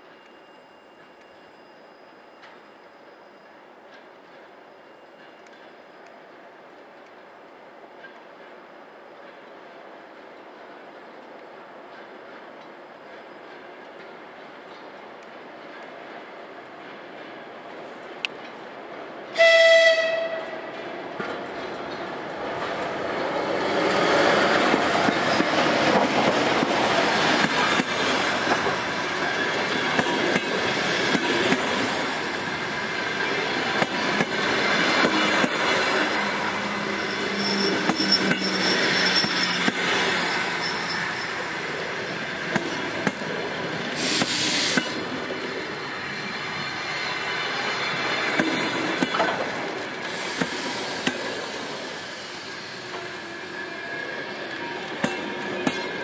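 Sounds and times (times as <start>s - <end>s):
locomotive horn blast: 19.4s - 20.6s
train wheels rumbling and clacking: 20.1s - 56.0s.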